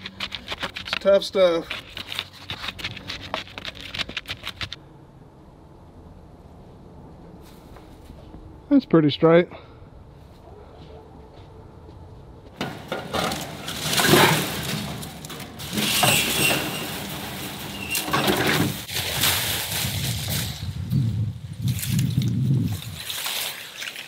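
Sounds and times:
wire fencing rattling and scraping: 12.6s - 22.2s.

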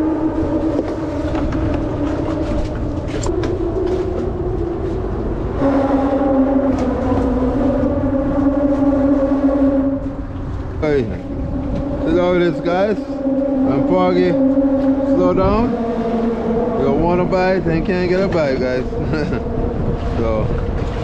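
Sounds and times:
passing vehicle traffic drone: 0.0s - 21.0s.

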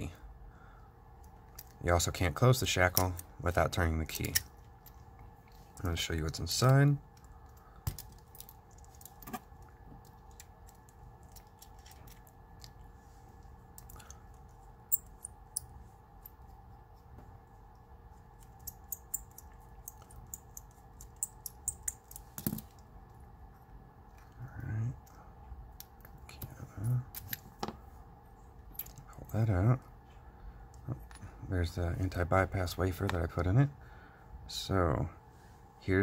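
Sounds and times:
faint steady hum: 0.0s - 36.0s
metal tool clicking in padlock: 18.4s - 22.6s.

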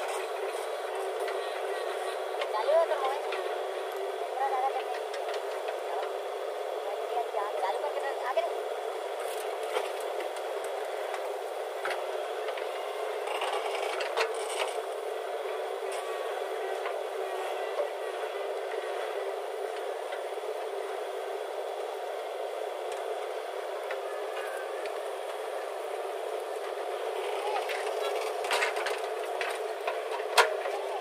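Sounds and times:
diesel engine running: 0.0s - 31.0s
machine scrapes and clatters: 13.2s - 14.8s.

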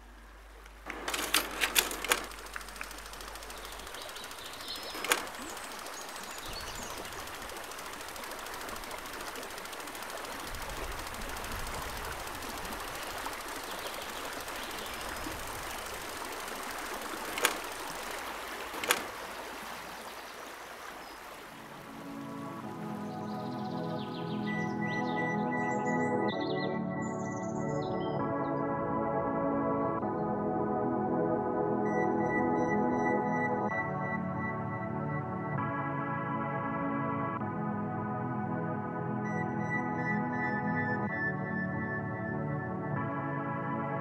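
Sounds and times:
river water flowing: 0.0s - 24.8s
sharp clicks: 0.6s - 20.0s.

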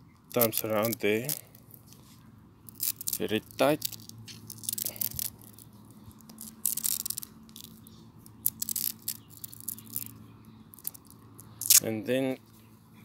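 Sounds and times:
faint low hum: 0.0s - 13.0s
tape ripping off roll: 2.7s - 7.7s.

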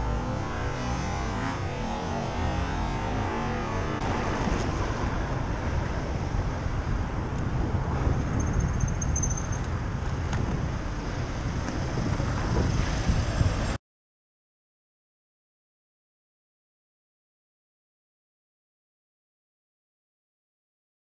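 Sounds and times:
road traffic passing: 0.0s - 13.8s
wind buffeting microphone: 0.0s - 13.8s
faint high whistle: 8.4s - 9.6s.

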